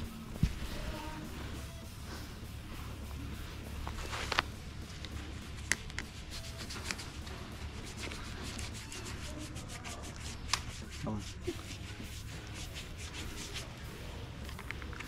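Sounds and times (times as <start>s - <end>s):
gear rustling and handling: 0.2s - 9.2s.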